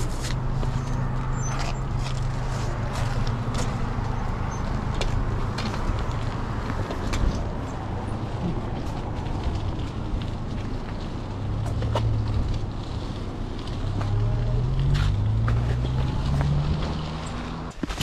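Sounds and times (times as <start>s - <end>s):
bike tyres rolling on pavement: 0.0s - 18.0s.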